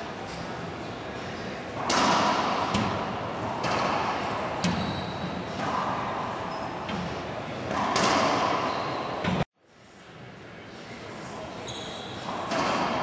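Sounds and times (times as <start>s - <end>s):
racquetball cracks with echo: 1.8s - 4.8s, 7.7s - 8.7s.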